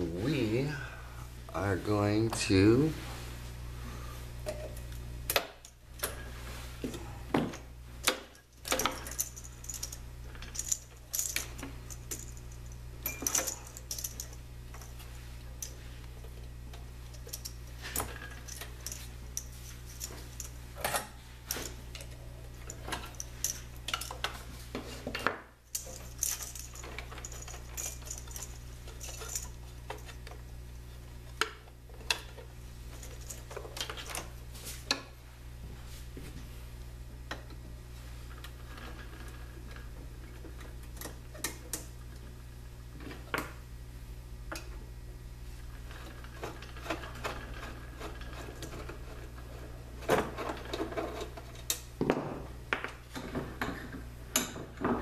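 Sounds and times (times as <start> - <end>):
steady low hum: 0.0 - 55.0
clicks and metallic clinks: 8.0 - 14.9, 25.7 - 30.4.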